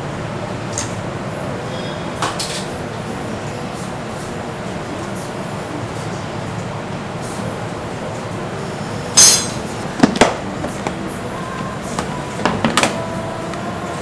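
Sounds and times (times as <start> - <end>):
metal tongs clinking: 9.2 - 9.7.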